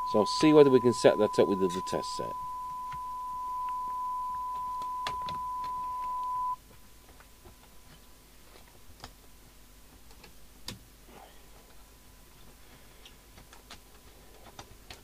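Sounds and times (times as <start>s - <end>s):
steady audio test tone: 0.0s - 6.6s.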